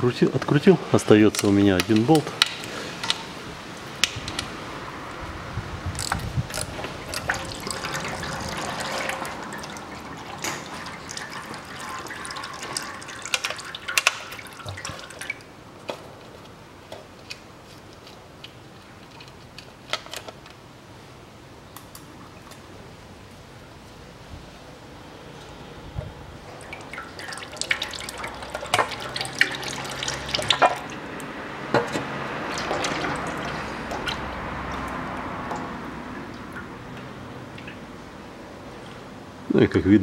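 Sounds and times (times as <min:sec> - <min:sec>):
fluid trickling and dripping: 0:06.0 - 0:15.5, 0:26.4 - 0:39.2.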